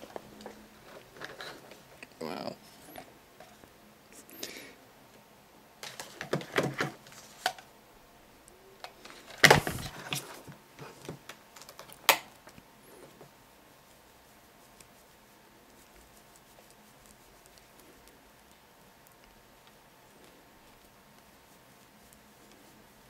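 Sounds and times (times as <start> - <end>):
plastic mice clattering: 5.8 - 7.7, 8.8 - 12.3.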